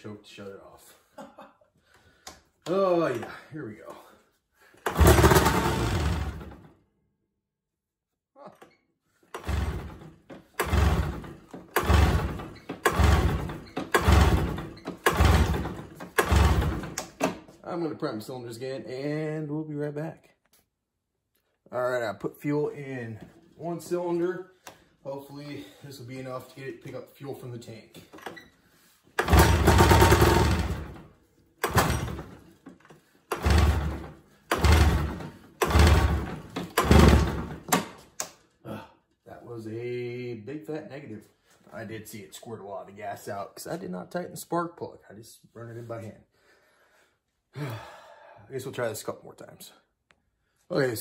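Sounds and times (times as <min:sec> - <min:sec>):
snowmobile engine cranking: 0:04.8 - 0:06.7, 0:09.3 - 0:17.2, 0:29.2 - 0:37.9.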